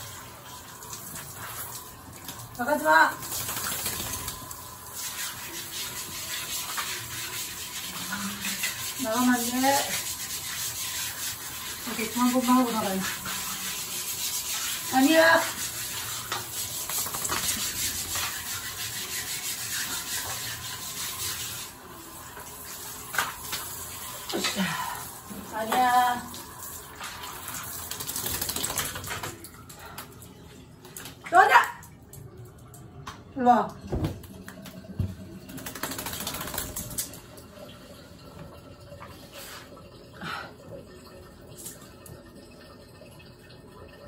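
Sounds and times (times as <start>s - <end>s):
shower head spraying water: 2.8s - 21.8s, 35.5s - 37.2s
dog claws clicking on wet tiles: 35.6s - 37.2s.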